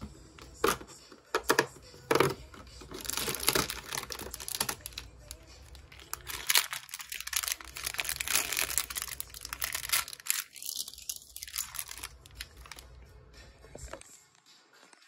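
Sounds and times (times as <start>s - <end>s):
plastic bag crinkling and tearing: 2.9s - 12.9s.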